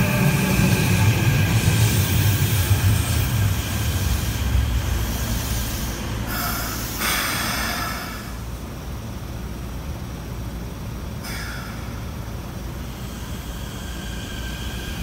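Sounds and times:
train wheels rumbling: 0:00.0 - 0:15.0
brake squeal and hiss: 0:05.0 - 0:08.4, 0:11.2 - 0:11.9, 0:12.8 - 0:15.0.

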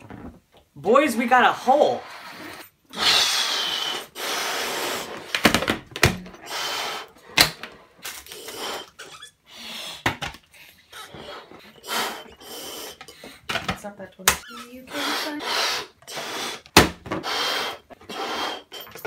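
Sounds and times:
person blowing into balloons: 0:01.8 - 0:05.5, 0:06.3 - 0:07.4, 0:08.0 - 0:13.4, 0:14.4 - 0:19.0.

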